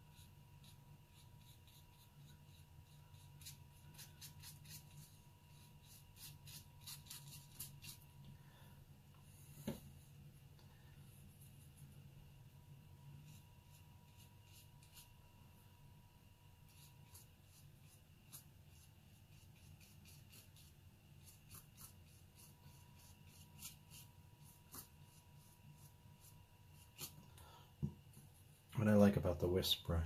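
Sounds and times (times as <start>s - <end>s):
brush scratching on paper: 0.0s - 8.1s, 13.0s - 15.3s, 16.6s - 27.2s
faint steady hum: 0.0s - 30.0s.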